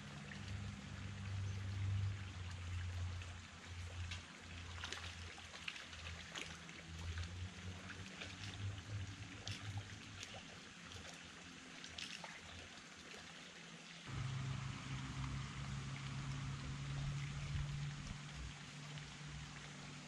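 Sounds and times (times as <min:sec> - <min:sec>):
faint trickling water: 0:00.0 - 0:20.0
low rumble: 0:14.1 - 0:20.0.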